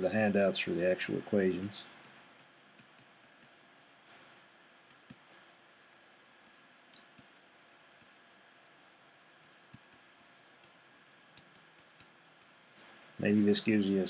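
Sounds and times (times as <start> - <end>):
stylus tapping on tablet: 2.0 - 3.6, 4.9 - 5.3, 9.4 - 12.6.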